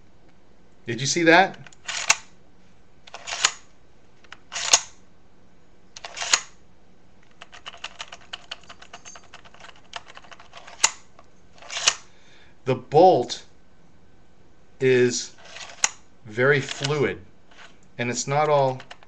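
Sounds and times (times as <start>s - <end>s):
rifle bolt sliding and clacking: 1.6s - 2.3s, 3.1s - 3.7s, 4.3s - 5.0s, 6.0s - 6.5s, 7.2s - 12.0s, 15.4s - 16.0s, 16.6s - 17.8s, 18.7s - 19.0s.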